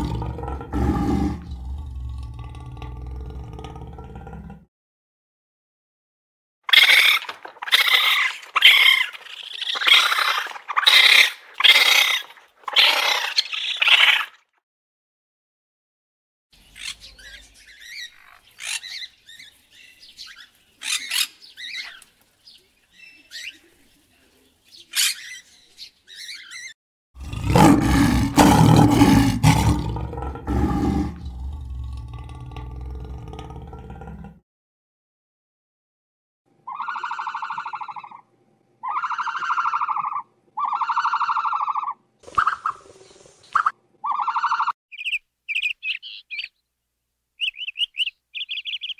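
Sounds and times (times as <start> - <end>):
lion roaring: 0.0 - 4.7, 27.2 - 34.4
raccoon chittering: 6.7 - 14.3, 36.7 - 38.2, 38.8 - 42.9, 43.6 - 46.6, 47.4 - 48.9.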